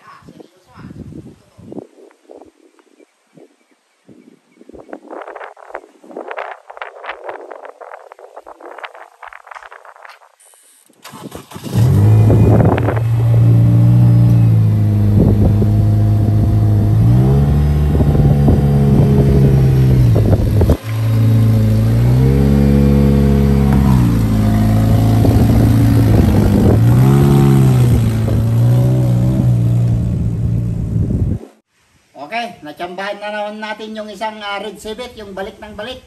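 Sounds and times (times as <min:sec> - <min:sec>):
car engine revving: 0:11.1 - 0:31.6.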